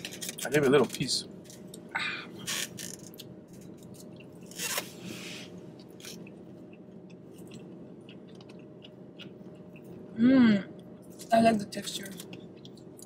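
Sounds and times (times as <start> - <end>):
chewing food: 5.8 - 10.1, 12.0 - 13.0.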